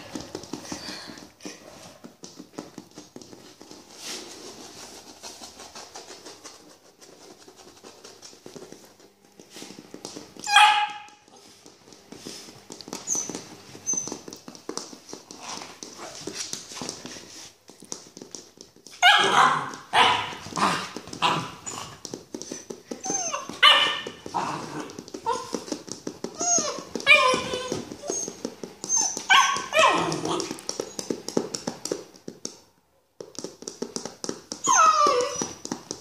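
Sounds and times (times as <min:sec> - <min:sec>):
soft scuffling: 0:00.0 - 0:36.0
puppy barking and yipping: 0:10.4 - 0:11.2, 0:19.0 - 0:22.0, 0:23.0 - 0:25.6, 0:26.4 - 0:30.6, 0:34.6 - 0:35.6.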